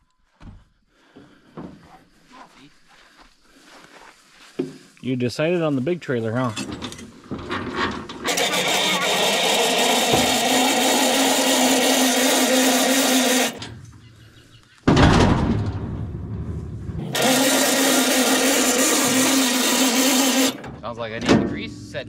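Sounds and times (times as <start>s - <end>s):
hand-cranked jack whirring: 8.1s - 13.6s, 17.0s - 20.6s
loud rumble: 15.0s - 20.8s.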